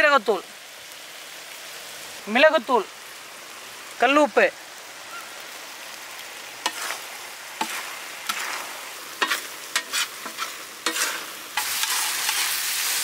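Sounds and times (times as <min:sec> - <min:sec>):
seafood sizzling in a pan: 0:00.0 - 0:13.0
metal spatula scraping a pan: 0:06.6 - 0:07.0, 0:07.6 - 0:13.0.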